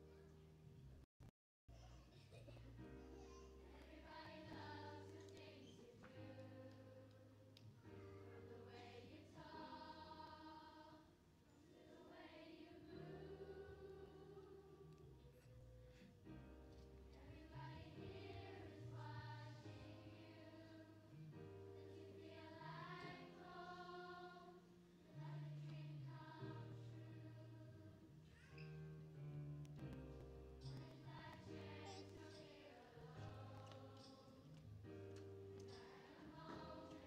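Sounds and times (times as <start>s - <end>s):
children's choir singing: 3.6s - 7.4s, 8.1s - 15.0s, 17.1s - 28.0s, 30.6s - 34.6s, 35.6s - 37.0s.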